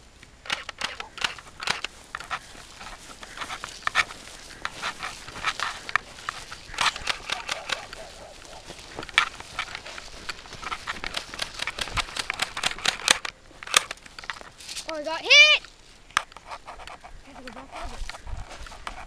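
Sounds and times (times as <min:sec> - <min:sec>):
footsteps crunching through vegetation: 0:00.0 - 0:19.0.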